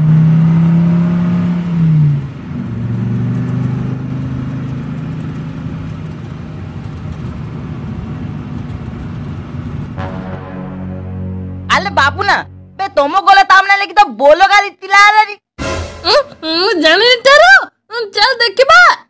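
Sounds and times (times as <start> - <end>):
pickup truck engine running: 2.3 - 10.0.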